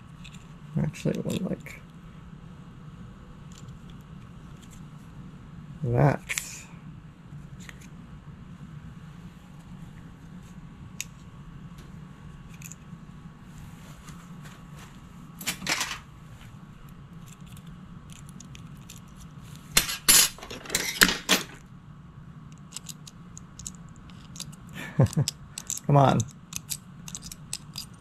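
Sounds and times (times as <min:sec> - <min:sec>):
steady low hum: 0:00.0 - 0:28.0
metal tools clinking on workbench: 0:15.6 - 0:16.0, 0:19.8 - 0:21.6.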